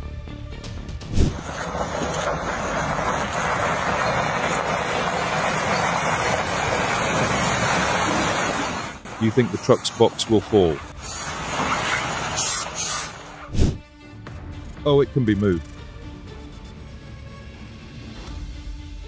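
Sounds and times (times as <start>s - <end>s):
vehicle road and wind noise: 1.0s - 13.8s.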